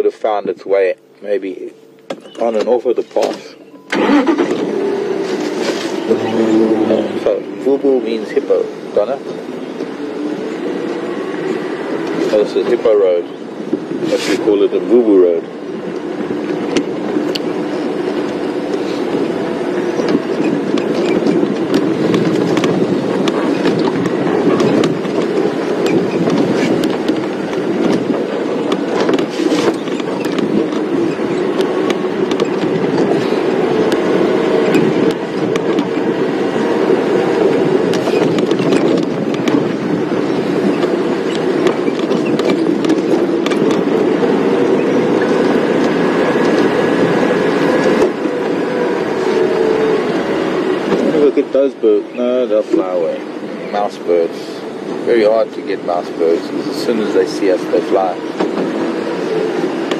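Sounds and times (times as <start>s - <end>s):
vehicle engine and road rumble: 0.0s - 59.9s
rattles and knocks: 18.1s - 36.1s, 37.4s - 47.2s.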